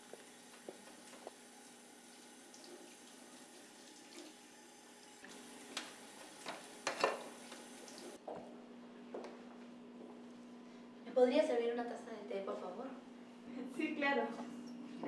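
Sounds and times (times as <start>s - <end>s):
tap water running into sink: 0.1s - 8.2s.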